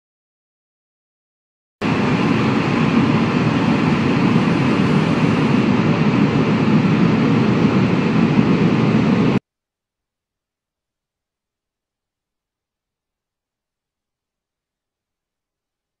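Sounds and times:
loud low rushing noise: 1.8s - 9.4s.

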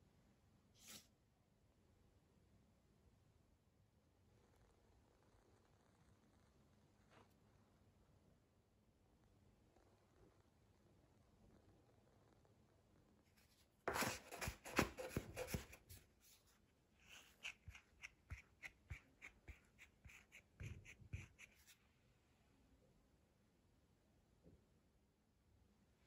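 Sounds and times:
bench scraper on wooden board: 13.9s - 15.8s.

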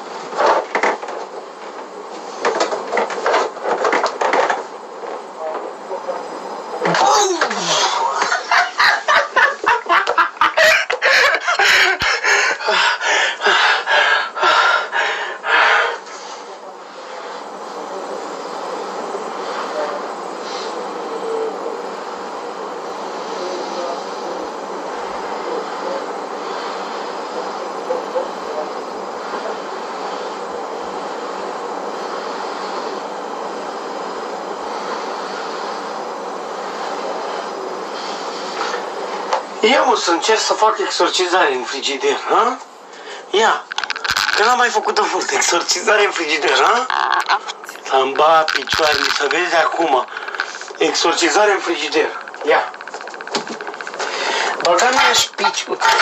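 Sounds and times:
steady rushing noise: 34.6s - 56.0s
rapid clucking squawks: 46.2s - 56.0s.

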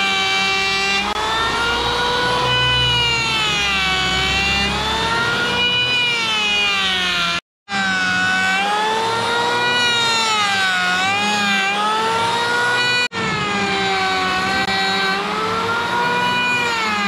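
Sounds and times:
electric hand planer whining: 0.0s - 17.0s.

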